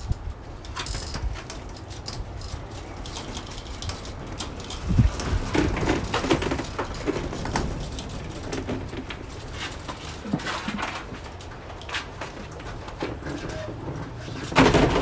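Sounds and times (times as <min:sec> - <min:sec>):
wind buffeting microphone: 0:00.0 - 0:10.2
plastic panel clattering and crinkling: 0:00.7 - 0:15.0.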